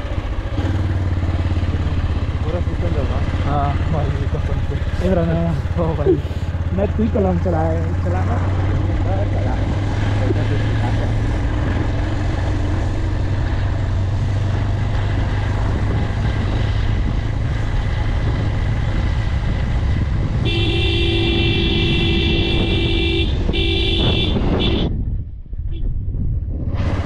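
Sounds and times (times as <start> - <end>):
motorcycle engine and road rumble: 0.0 - 27.0
horn blast: 20.4 - 24.9.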